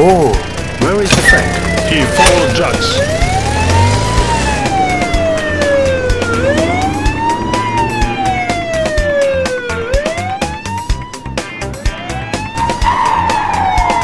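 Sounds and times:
emergency siren wailing: 1.2 - 14.0.

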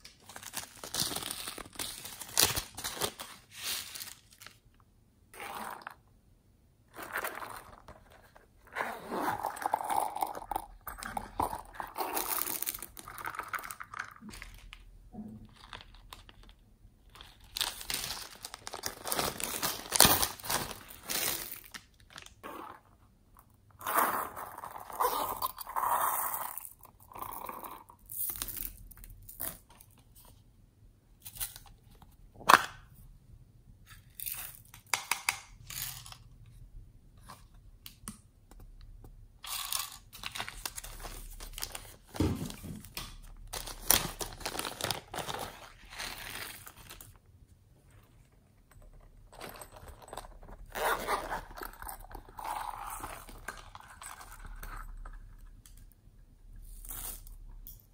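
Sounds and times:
plastic bags crinkling: 15.4 - 22.4, 39.5 - 47.2.

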